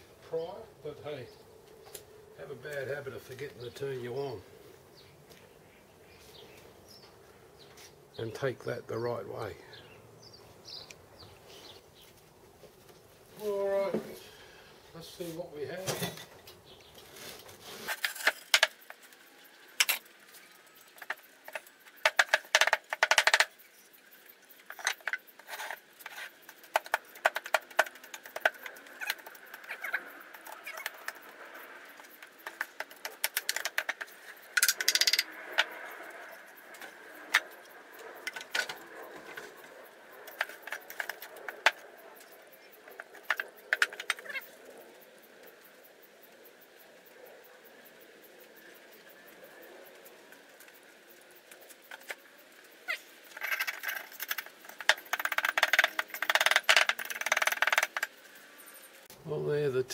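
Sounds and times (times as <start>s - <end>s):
sand scraping and crumbling: 16.8s - 21.7s
metal castings knocking and clinking: 32.4s - 35.8s.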